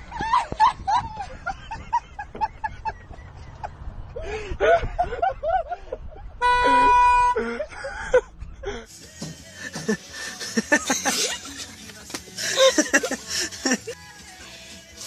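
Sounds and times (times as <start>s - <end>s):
person giggling: 6.7s - 8.9s, 9.6s - 11.7s, 12.4s - 14.0s.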